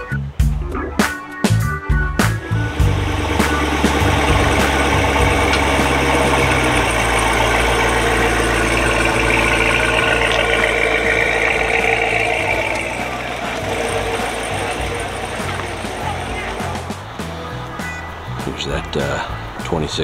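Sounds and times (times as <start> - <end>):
car engine pulling away: 2.4 - 18.4.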